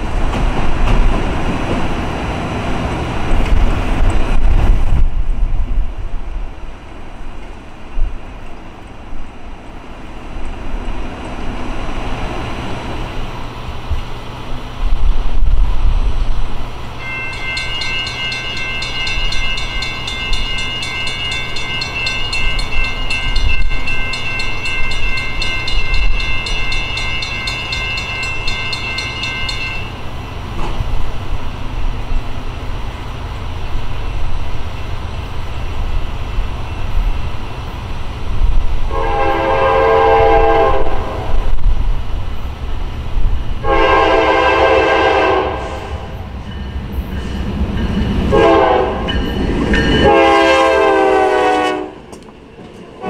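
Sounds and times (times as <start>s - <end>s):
diesel locomotive rumbling: 0.0s - 53.0s
train horn blasts: 38.9s - 41.5s, 43.6s - 46.2s, 48.3s - 49.2s, 50.0s - 52.1s.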